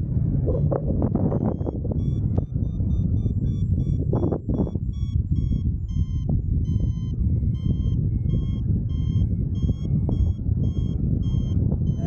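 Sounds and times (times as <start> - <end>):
variometer beeping: 0.0 - 12.0
wind rumble on microphone: 0.0 - 12.0.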